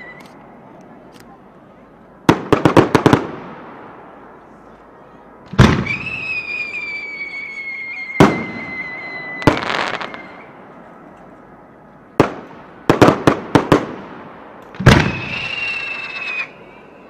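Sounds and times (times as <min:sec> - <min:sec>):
fireworks bangs: 0:02.2 - 0:04.4, 0:05.5 - 0:10.7, 0:12.2 - 0:17.0
fireworks crackling pops: 0:02.3 - 0:03.8, 0:05.5 - 0:11.4, 0:12.2 - 0:16.8
firework whistle: 0:05.5 - 0:10.6, 0:14.8 - 0:17.0.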